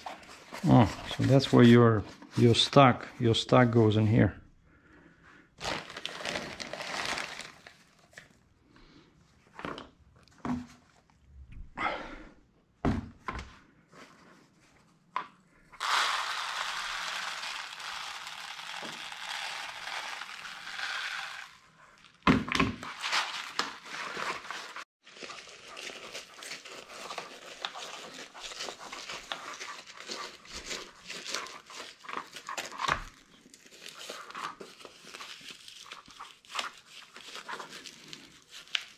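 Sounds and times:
fabric bag crinkling and rustling: 0:00.0 - 0:02.5, 0:05.6 - 0:08.3, 0:15.8 - 0:22.2, 0:22.9 - 0:38.9
rice grains streaming in: 0:15.8 - 0:21.6
rice trickling: 0:15.8 - 0:21.6.

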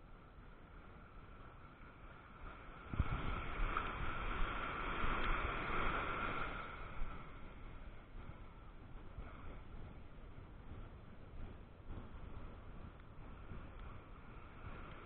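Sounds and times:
wave breaking on beach: 0:01.1 - 0:08.5.

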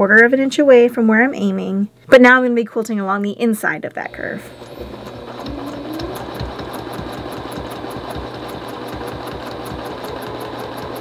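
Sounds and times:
sewing machine stitching: 0:04.2 - 0:11.0.

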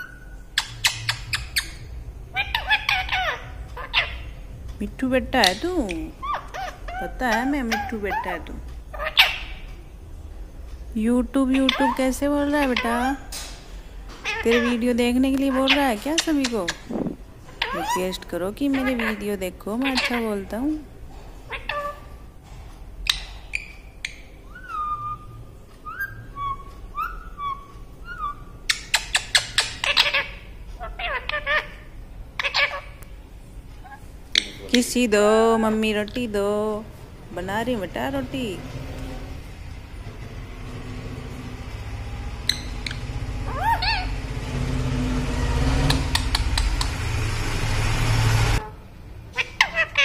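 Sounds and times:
parakeet whistling: 0:00.0 - 0:04.4, 0:23.0 - 0:33.0, 0:42.1 - 0:44.4
parakeet sharp calls: 0:00.0 - 0:04.5, 0:05.2 - 0:09.8, 0:14.2 - 0:20.6, 0:21.3 - 0:22.3, 0:23.0 - 0:35.8, 0:37.6 - 0:50.0
low rumbling noise: 0:00.0 - 0:23.1, 0:29.4 - 0:49.4
sharp clicks: 0:45.8 - 0:47.0.

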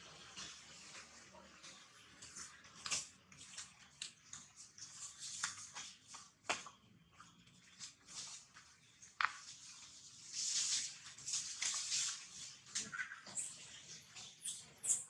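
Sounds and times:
dry leaves rustling and crackling: 0:09.4 - 0:13.0.

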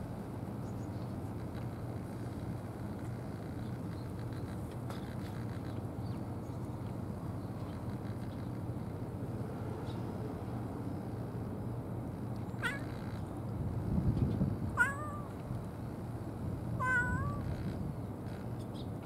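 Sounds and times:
cat meowing: 0:12.6 - 0:13.2, 0:14.8 - 0:15.4, 0:16.8 - 0:17.7.

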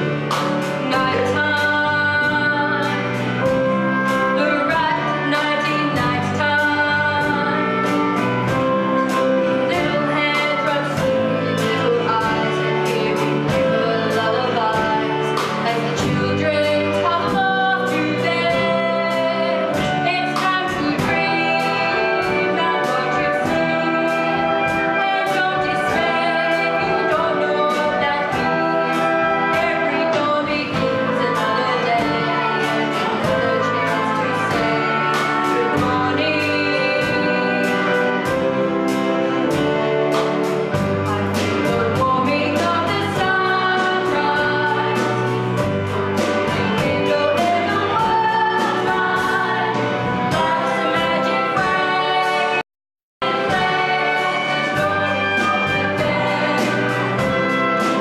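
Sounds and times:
children's choir singing: 0:09.6 - 0:39.8, 0:46.1 - 0:52.6, 0:53.2 - 0:58.0.

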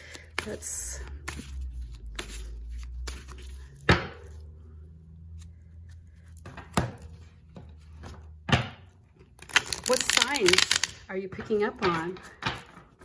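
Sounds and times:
cards shuffling: 0:00.0 - 0:04.6, 0:09.3 - 0:11.0.

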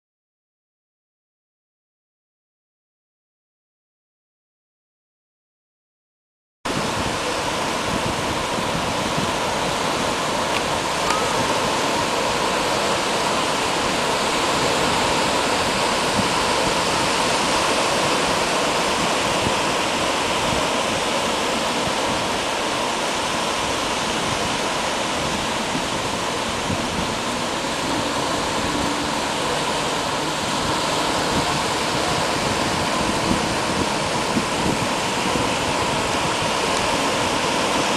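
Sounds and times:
waves breaking on a beach: 0:06.7 - 0:37.9.

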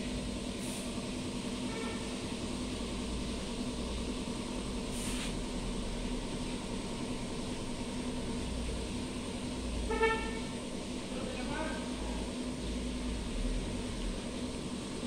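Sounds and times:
low mechanical hum: 0:00.0 - 0:15.0
short hiss: 0:04.9 - 0:05.4.

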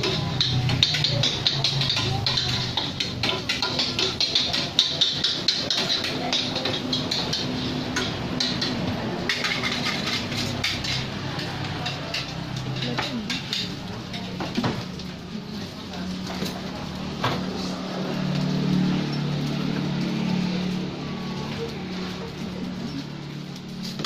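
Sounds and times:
metal spatula scraping a wok: 0:00.0 - 0:13.8.

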